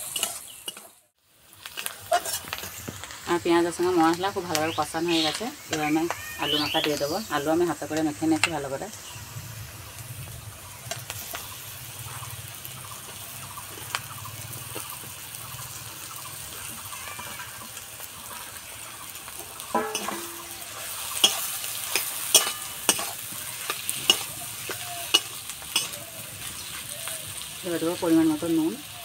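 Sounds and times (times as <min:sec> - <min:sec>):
metal spatula scraping pan: 0:00.0 - 0:01.0, 0:01.9 - 0:02.8, 0:19.7 - 0:26.1
food sizzling in a pan: 0:00.0 - 0:29.0.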